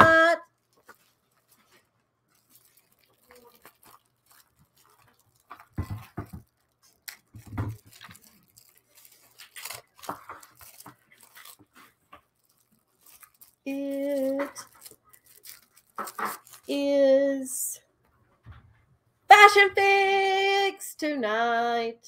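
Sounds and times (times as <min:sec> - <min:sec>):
plastic packaging rustling: 0:00.4 - 0:16.9
dull thumps: 0:05.6 - 0:06.5.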